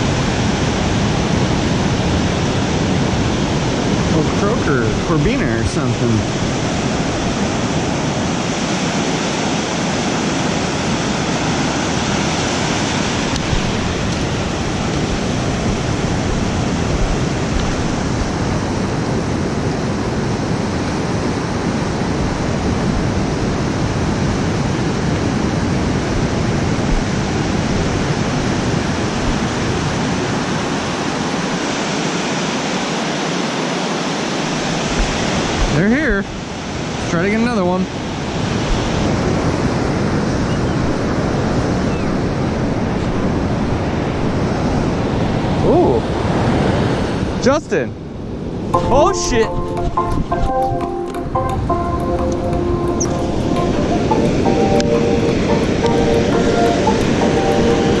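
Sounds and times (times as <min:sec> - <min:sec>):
ocean surf washing on sand: 0:00.0 - 0:58.0.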